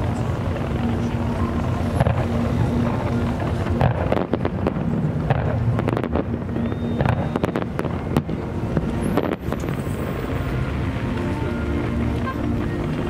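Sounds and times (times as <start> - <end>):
fireworks bangs and crackling: 0.0 - 13.0
steady low rumble: 0.0 - 13.0
thin firework whistle: 5.9 - 12.8.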